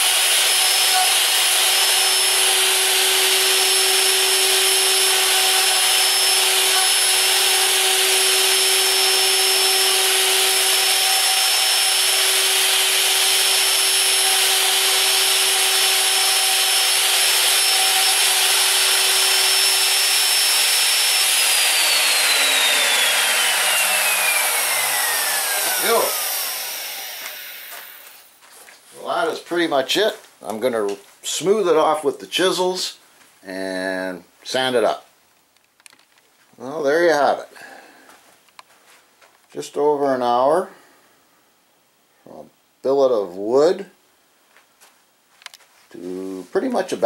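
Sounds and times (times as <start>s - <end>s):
router spinning down: 0.0s - 28.3s
wood router whining and cutting: 0.0s - 28.4s.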